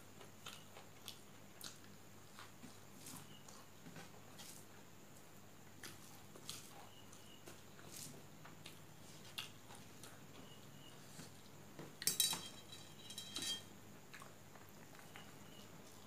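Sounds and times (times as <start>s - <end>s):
metal plate clinking: 12.0s - 13.7s.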